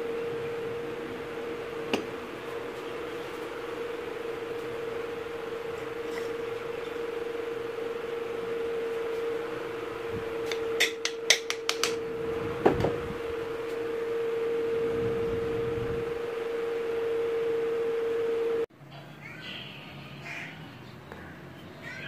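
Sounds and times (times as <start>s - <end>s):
steady hum: 0.0s - 18.9s
hatchet head and handle knocking: 10.8s - 12.0s.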